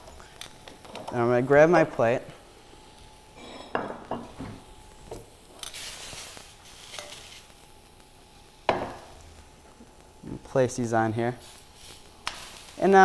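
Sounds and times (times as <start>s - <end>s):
utensil scraping in metal skillet: 5.6s - 7.6s.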